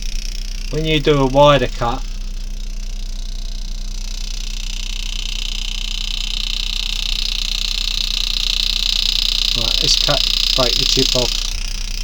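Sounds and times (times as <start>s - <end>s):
low electrical hum: 0.0s - 12.0s
high hiss: 4.1s - 12.0s.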